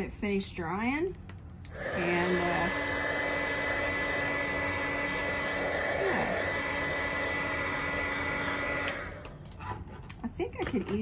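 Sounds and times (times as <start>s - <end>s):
electric dryer blowing with whine: 1.6s - 9.6s.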